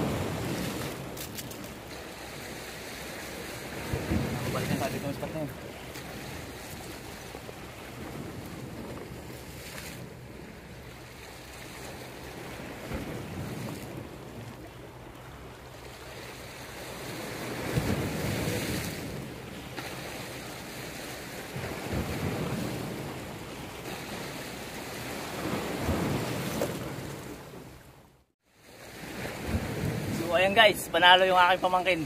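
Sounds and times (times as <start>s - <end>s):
wind buffeting microphone: 0.0s - 14.6s
waves breaking against rocks: 0.0s - 27.7s, 28.6s - 32.0s.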